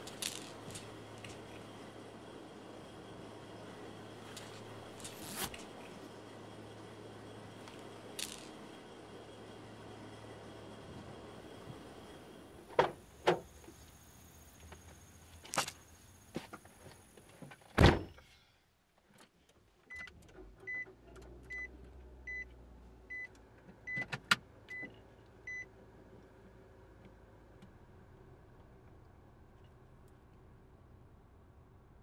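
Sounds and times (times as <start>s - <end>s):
car door shutting: 12.6s - 13.5s, 17.8s - 18.2s.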